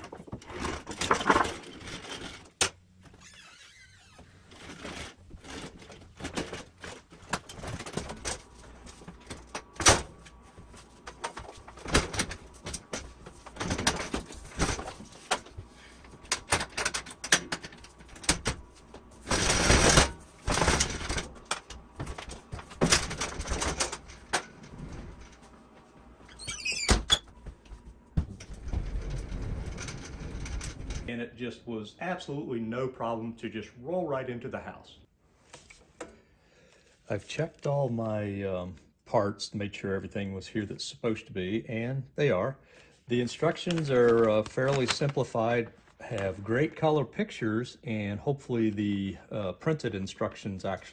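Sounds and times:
door squeaking and shutting: 0:03.0 - 0:04.9, 0:26.3 - 0:27.4.

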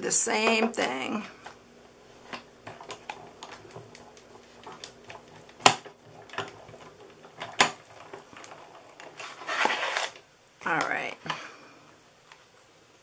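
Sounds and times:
die-cutting machine clicks and creaks: 0:02.3 - 0:11.0.

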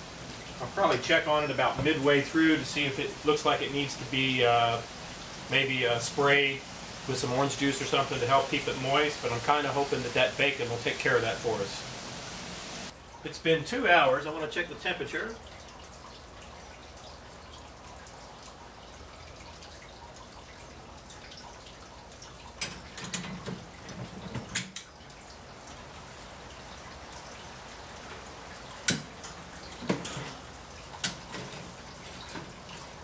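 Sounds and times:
faint steady hiss: 0:00.0 - 0:33.0
metal utensils clinking on grate: 0:28.9 - 0:32.5.

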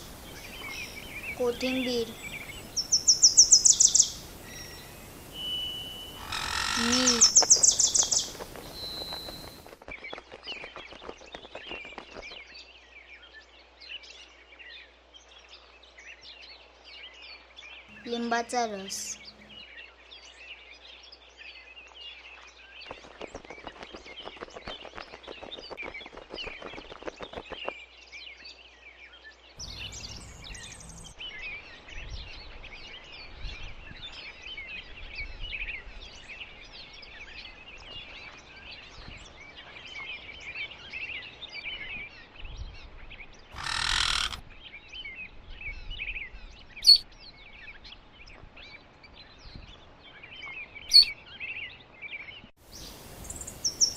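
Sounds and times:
small birds twittering: 0:00.0 - 0:09.8, 0:16.2 - 0:19.9, 0:29.4 - 0:53.9.

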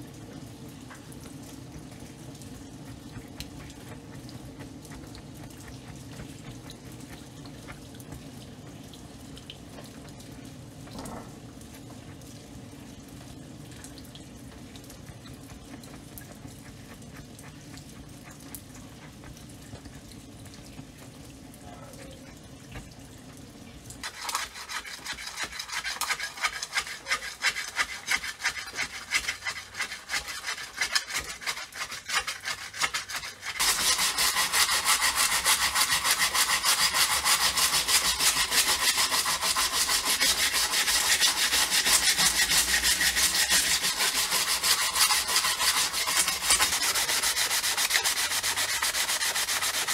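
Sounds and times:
low steady hum: 0:00.0 - 0:24.6.

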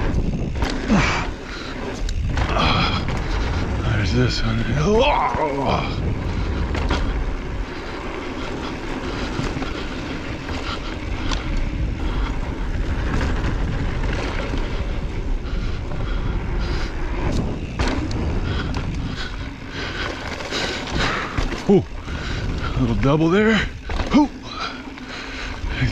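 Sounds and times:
bike clicks and rattles: 0:00.0 - 0:25.9
bike tyres rumbling on dirt trail: 0:00.0 - 0:25.9
wind buffeting microphone: 0:00.0 - 0:25.9.

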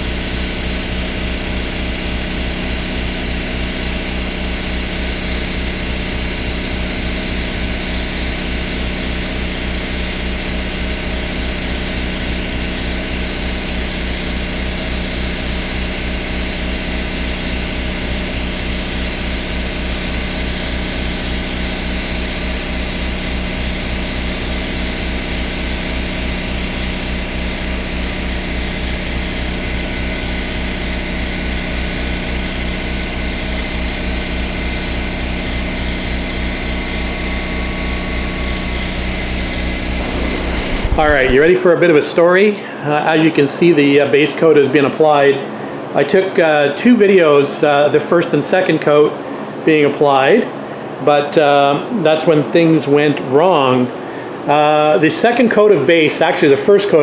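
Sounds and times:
air spray gun hissing: 0:00.0 - 0:27.2, 0:39.8 - 0:41.5
air compressor running: 0:00.0 - 0:57.0.

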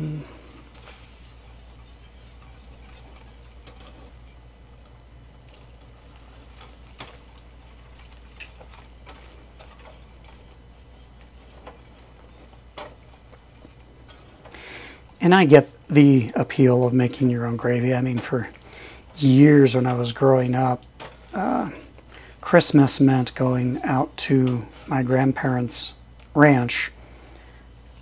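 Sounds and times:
whisk stirring in metal pan: 0:00.5 - 0:15.2.

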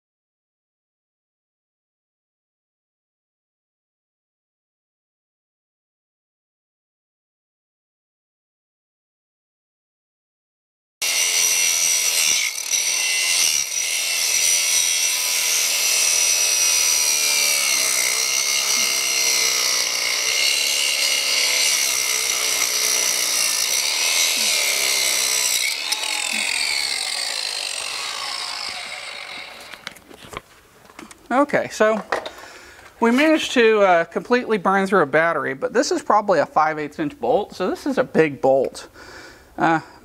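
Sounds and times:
angle grinder cutting steel bolt: 0:11.0 - 0:30.4.

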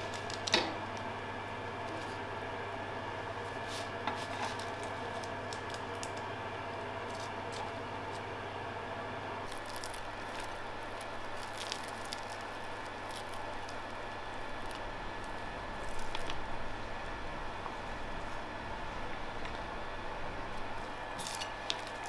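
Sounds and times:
croissants rustling on wire rack: 0:03.4 - 0:06.2, 0:09.5 - 0:17.0, 0:20.5 - 0:22.0
croissant crust crackling when torn: 0:09.5 - 0:16.7, 0:20.6 - 0:22.0.

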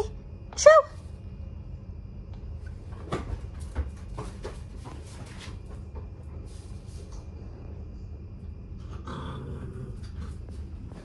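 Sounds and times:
dogs scuffling: 0:02.8 - 0:07.2.

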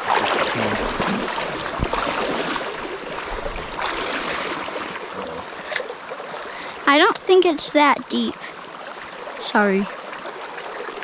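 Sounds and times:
river water rushing over bed: 0:00.0 - 0:07.0.

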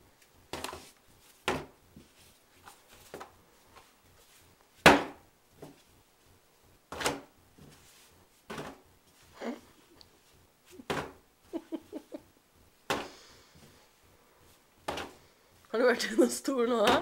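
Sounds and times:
dough slapped on wooden table: 0:01.4 - 0:01.8, 0:04.8 - 0:05.8, 0:14.8 - 0:15.1.

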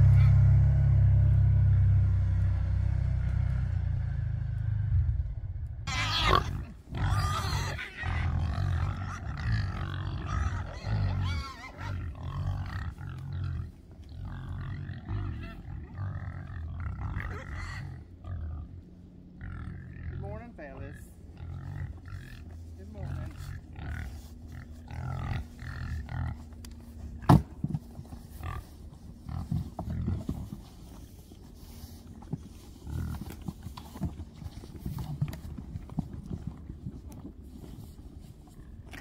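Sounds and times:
pigs grunting: 0:00.0 - 0:04.1, 0:05.9 - 0:39.0
low engine rumble: 0:00.0 - 0:39.0
pig squealing: 0:05.9 - 0:18.8.

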